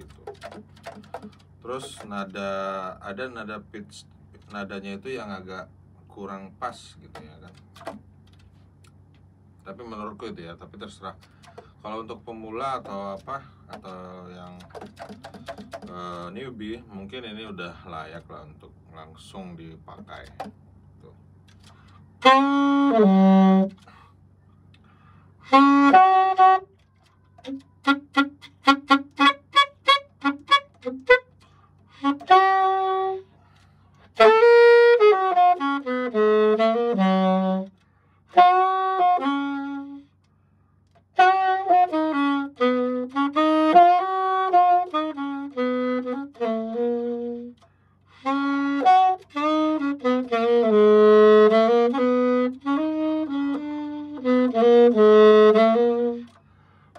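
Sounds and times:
alto saxophone played solo: 21.6 - 24.1, 25.4 - 40.2, 40.9 - 56.9.

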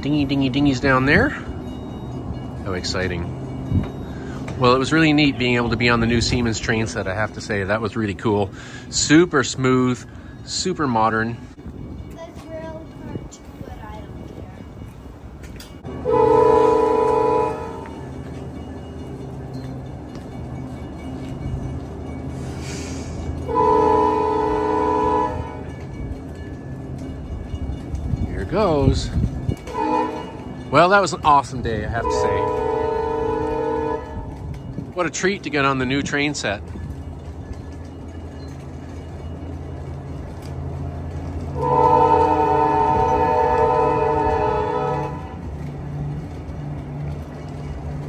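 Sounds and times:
train humming at standstill: 0.0 - 48.0
train horn blast: 15.9 - 17.9, 23.4 - 25.7, 29.6 - 30.5, 31.9 - 34.4, 41.5 - 45.5.

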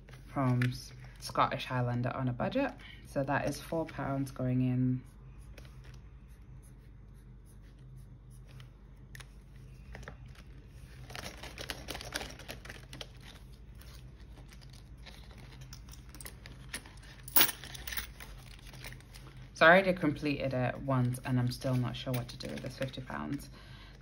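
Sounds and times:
faint low hum: 0.0 - 24.0
envelopes rustling and crinkling: 8.4 - 19.6.

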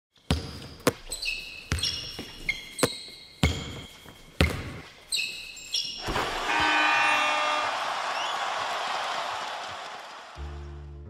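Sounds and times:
basketball bouncing on hard floor: 0.3 - 4.9.

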